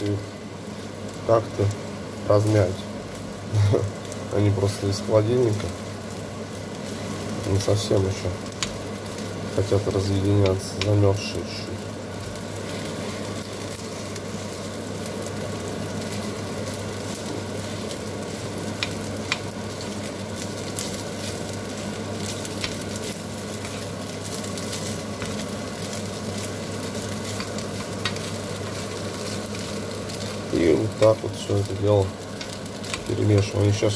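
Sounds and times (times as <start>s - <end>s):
food sizzling in a frying pan: 0.0s - 33.9s
wooden spatula stirring: 12.2s - 31.4s.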